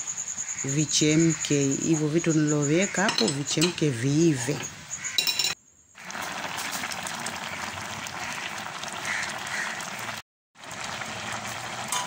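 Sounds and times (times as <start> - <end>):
pot boiling hard: 6.0 - 12.0.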